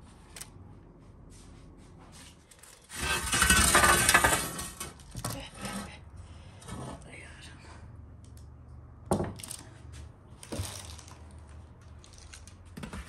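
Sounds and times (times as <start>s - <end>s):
dish scraping rub: 2.0s - 4.9s.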